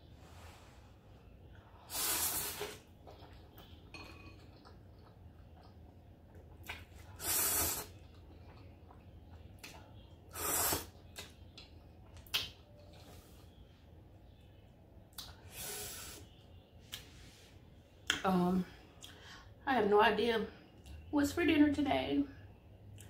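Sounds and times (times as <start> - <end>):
hissy noodle slurps: 1.9 - 3.4, 6.6 - 8.3, 10.3 - 11.2.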